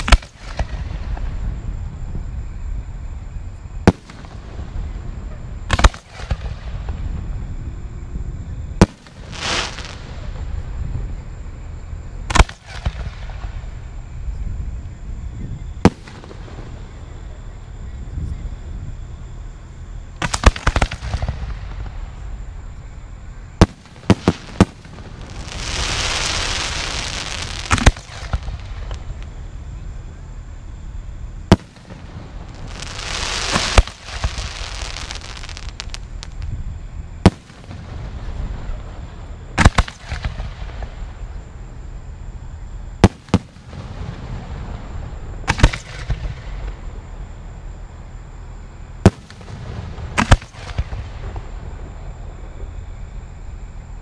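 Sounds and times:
fireworks launching and bursting: 0.0 - 1.5, 3.8 - 7.3, 8.7 - 10.8, 12.3 - 13.8, 15.8 - 17.0, 20.2 - 22.6, 23.6 - 29.4, 31.5 - 41.3, 43.0 - 47.0, 49.0 - 52.8
fireworks hissing: 8.7 - 11.1, 20.2 - 29.5, 31.5 - 41.4.

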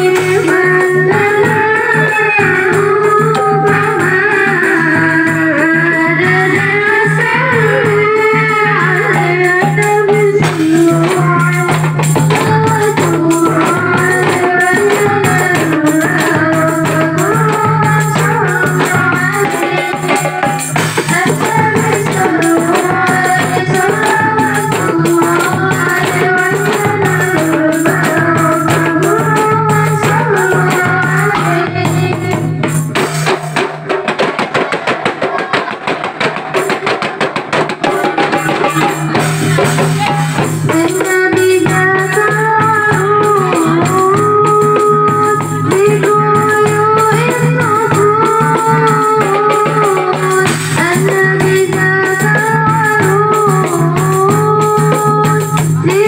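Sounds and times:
woman singing melismatic melody: 0.0 - 11.8
hand drums: 0.0 - 56.0.

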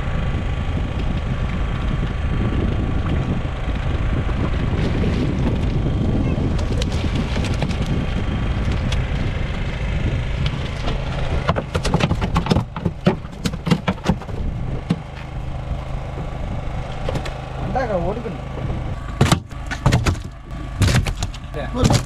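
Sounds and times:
boat engine: 0.0 - 22.0
water noise: 0.0 - 22.0
fish flapping on deck: 6.5 - 9.1, 10.4 - 15.2.

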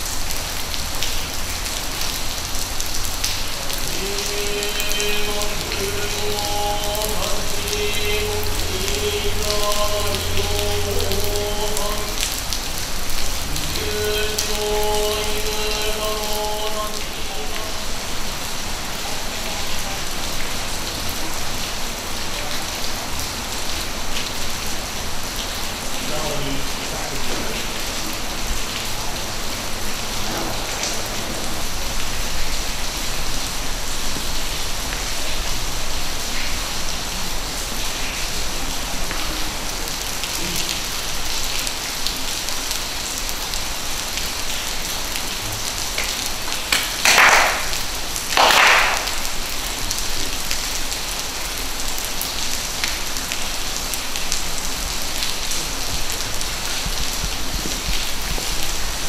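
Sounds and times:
rain on stone paving: 0.0 - 59.0.

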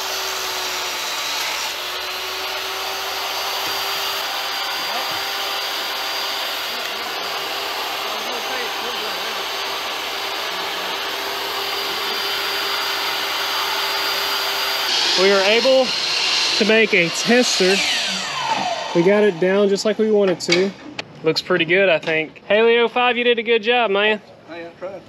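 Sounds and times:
table saw motor whine: 0.0 - 20.4.

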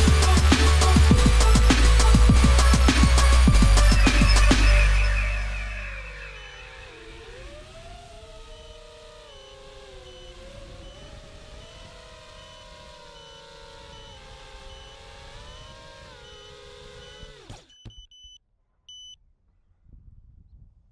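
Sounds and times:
quadcopter motors whining: 0.0 - 18.0
short high beeps: 8.5 - 19.2.

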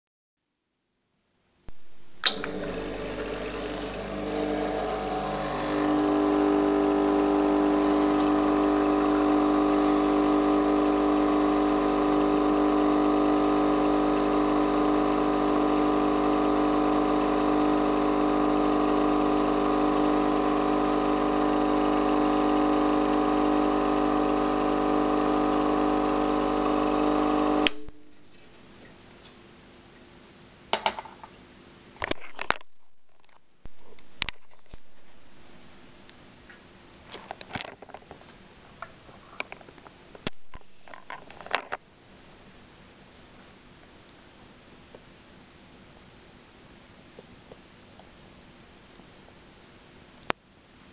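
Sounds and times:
espresso machine pump humming: 2.2 - 28.1.

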